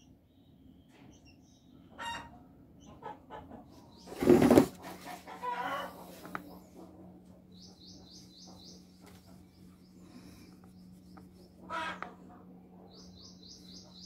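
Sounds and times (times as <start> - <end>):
low steady hum: 0.0 - 14.0
rustling scrape: 4.1 - 5.5
bird chirping: 7.5 - 11.6, 12.8 - 14.0.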